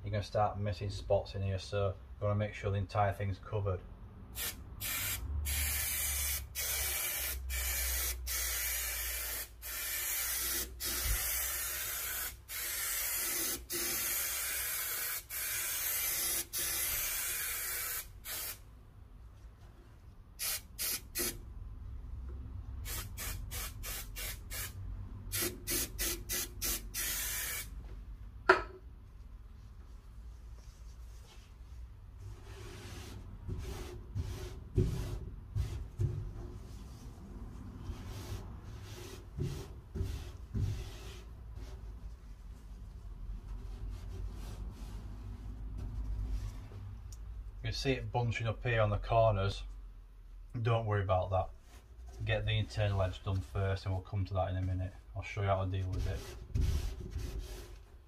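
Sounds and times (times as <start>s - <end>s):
spray adhesive hissing: 4.4s - 18.6s, 20.4s - 21.4s, 22.8s - 27.7s.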